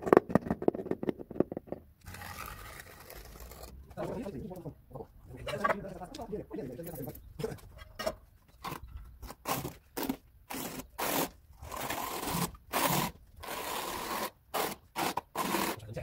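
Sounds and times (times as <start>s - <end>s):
trowel scraping mortar on concrete: 0.0s - 4.3s, 8.6s - 15.9s.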